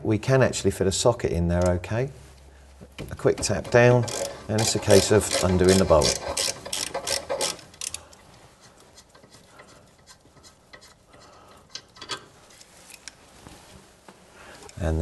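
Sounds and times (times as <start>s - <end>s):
tool scraping on bolt: 3.2s - 8.0s, 8.6s - 13.1s
socket ratchet clicking: 3.7s - 8.0s.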